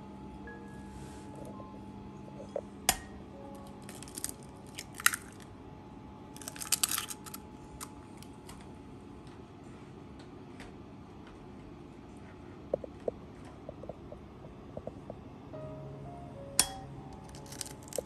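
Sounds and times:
eggshell crackling: 0:03.6 - 0:05.5, 0:06.4 - 0:08.3, 0:17.1 - 0:18.0.

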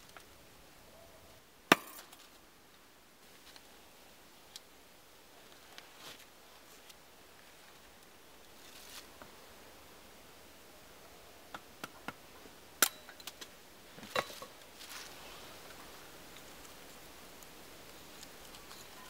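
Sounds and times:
faint rustling: 0:05.3 - 0:09.4, 0:13.9 - 0:17.1.

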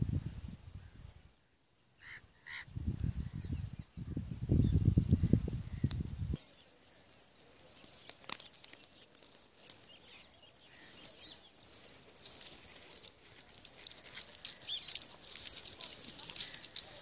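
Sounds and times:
dry wheat stalks rustling: 0:05.7 - 0:17.0.

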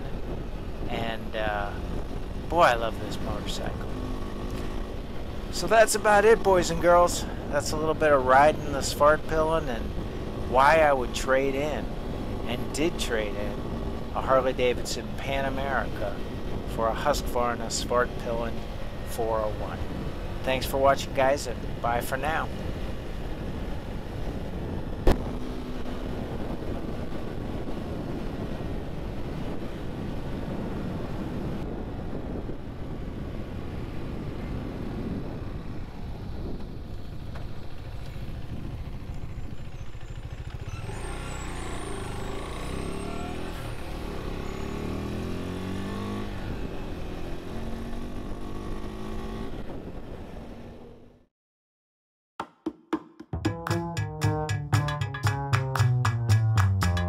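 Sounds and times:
wind noise: 0:00.0 - 0:10.4, 0:19.0 - 0:39.8, 0:48.6 - 0:50.6
motorcycle engine accelerating: 0:01.7 - 0:05.6, 0:34.2 - 0:51.2.

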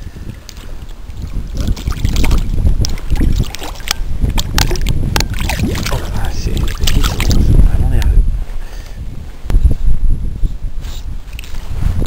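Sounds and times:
wind rumble on microphone: 0:00.0 - 0:12.0
fish splashing at surface: 0:01.2 - 0:07.5.

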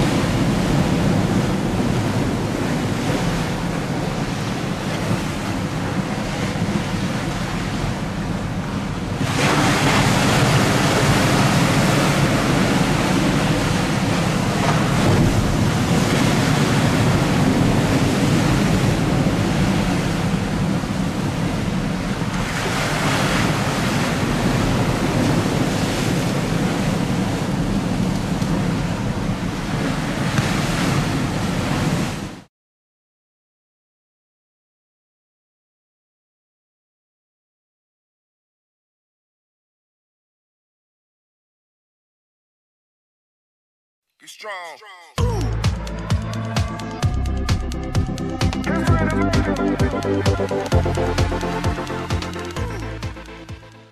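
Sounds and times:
waves slapping: 0:00.0 - 0:32.5, 0:45.7 - 0:53.9.

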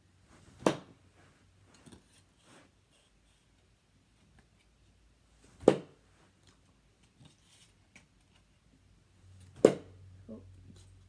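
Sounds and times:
card smacking target board: 0:00.6 - 0:00.9, 0:05.6 - 0:05.9, 0:09.5 - 0:09.9.

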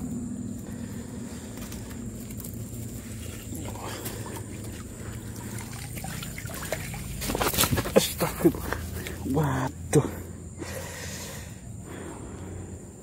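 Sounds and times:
stream trickling over rocks: 0:01.6 - 0:09.4.

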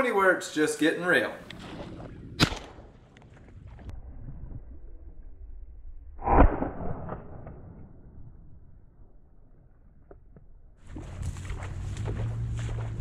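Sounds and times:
shotgun shots: 0:01.6 - 0:03.1
wind rumble on microphone: 0:10.8 - 0:13.0.

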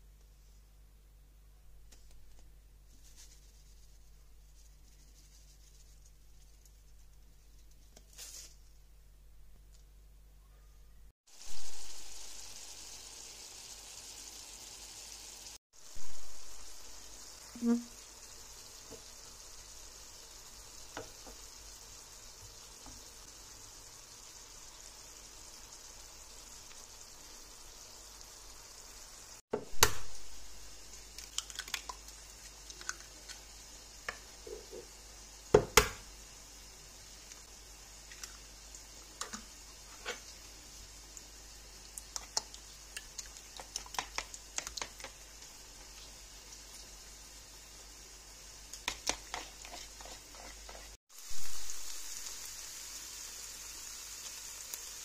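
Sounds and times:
vegetables sizzling in a pan: 0:08.0 - 0:08.7, 0:11.3 - 0:55.0
egg sizzling in hot pan: 0:11.2 - 0:55.0
eggs cracking: 0:30.9 - 0:33.4, 0:41.9 - 0:45.2.

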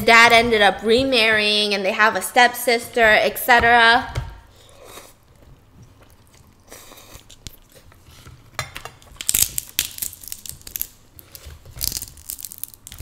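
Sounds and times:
soft chewing: 0:04.5 - 0:09.2
crab shell crunching and snapping: 0:05.3 - 0:13.0.

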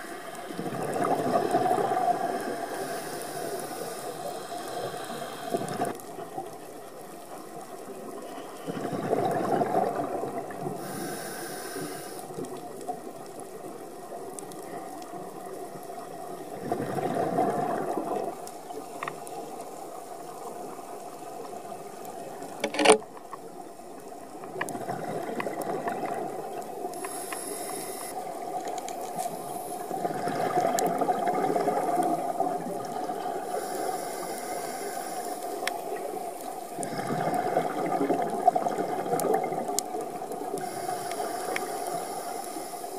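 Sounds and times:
bubbles rising underwater: 0:00.6 - 0:02.4, 0:08.7 - 0:10.7, 0:16.5 - 0:18.4, 0:24.6 - 0:26.7, 0:29.9 - 0:33.4, 0:36.8 - 0:40.4
diver breathing through regulator: 0:02.0 - 0:05.9, 0:10.8 - 0:12.3, 0:26.9 - 0:28.2, 0:33.4 - 0:35.6, 0:40.5 - 0:42.9
thin high hiss: 0:10.8 - 0:12.3, 0:27.0 - 0:28.2.

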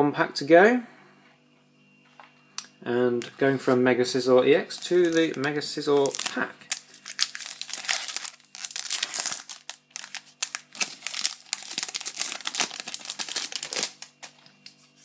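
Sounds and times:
foil wrapper tearing and crinkling: 0:04.7 - 0:15.0.

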